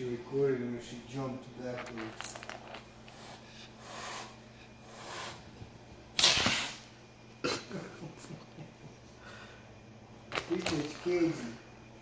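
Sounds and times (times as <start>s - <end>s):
cat hissing: 3.1s - 5.6s.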